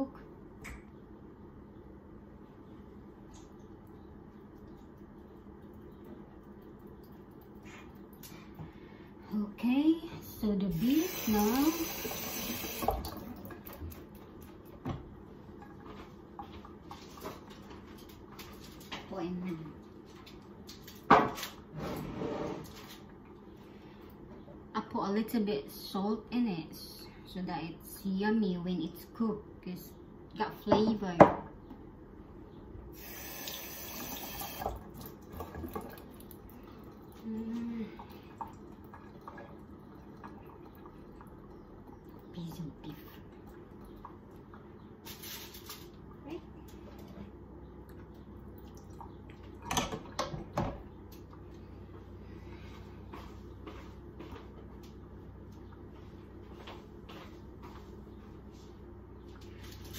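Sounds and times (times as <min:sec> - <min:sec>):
kitchen tap running: 0:10.7 - 0:14.2, 0:33.0 - 0:37.2, 0:38.0 - 0:42.6.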